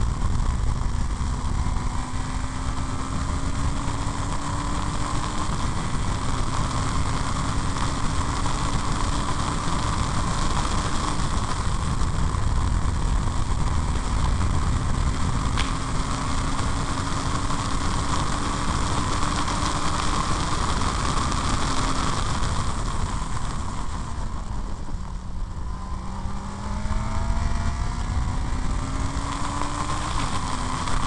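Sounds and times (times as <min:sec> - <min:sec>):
race car engine rumble: 0:00.0 - 0:31.0
wind noise: 0:00.0 - 0:31.0.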